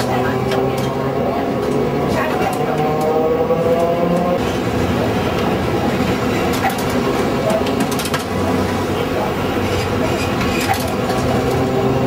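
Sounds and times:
tram rumble on rails: 0.0 - 12.0.

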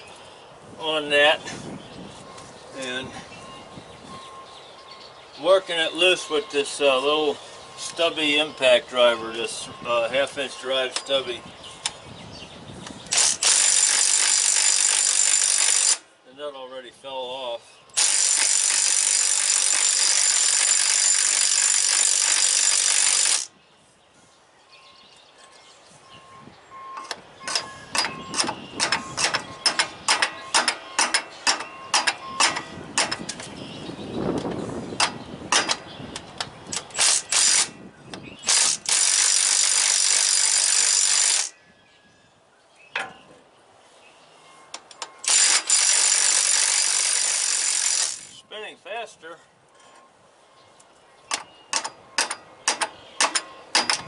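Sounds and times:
impact wrench hammering: 13.1 - 16.0, 18.0 - 23.5, 27.0 - 33.5, 34.4 - 35.9, 36.8 - 37.7, 38.5 - 41.5, 45.2 - 48.3, 51.3 - 54.0
sharp metallic clicks and knocks: 27.0 - 33.6, 34.3 - 41.5, 42.9 - 43.4, 44.7 - 48.3, 50.8 - 54.0.

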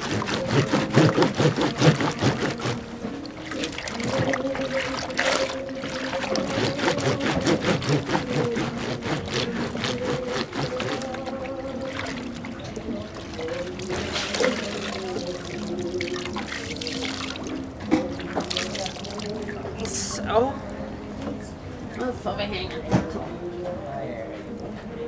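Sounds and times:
cloth scrubbed on washboard: 0.0 - 12.4, 13.1 - 17.4
water sloshing and splashing: 0.0 - 21.4.

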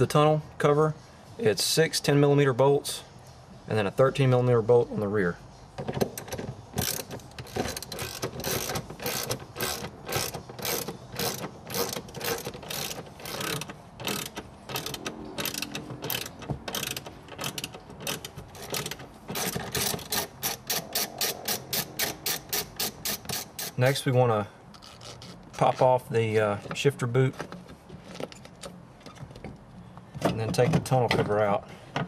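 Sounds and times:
hand ratchet clicking: 6.0 - 24.0.

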